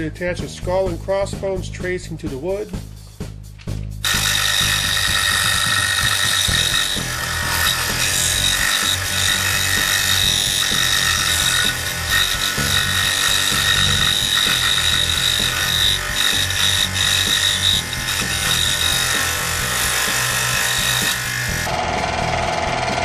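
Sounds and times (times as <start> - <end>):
scroll saw cutting wood: 4.0 - 23.0.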